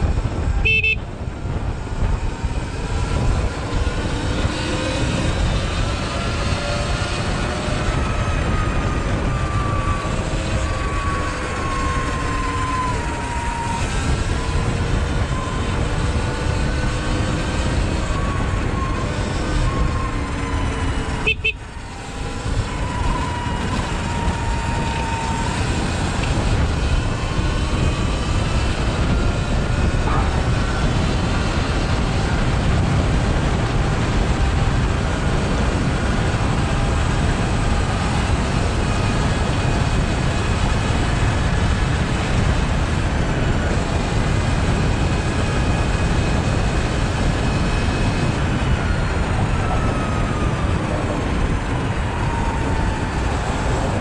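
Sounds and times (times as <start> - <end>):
wind and road noise: 0.0 - 54.0
electric motor whine: 1.4 - 42.3.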